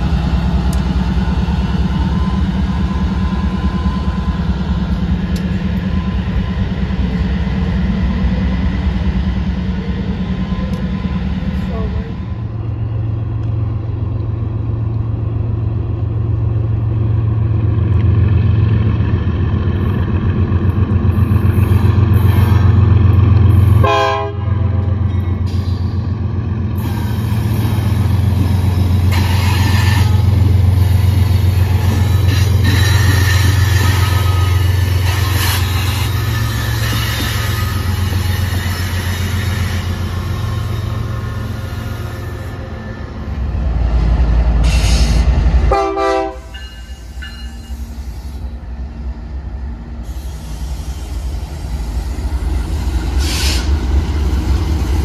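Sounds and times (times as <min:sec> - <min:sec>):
diesel locomotive engines droning: 0:00.0 - 0:55.0
train horn toots: 0:23.7 - 0:25.0, 0:45.7 - 0:46.8.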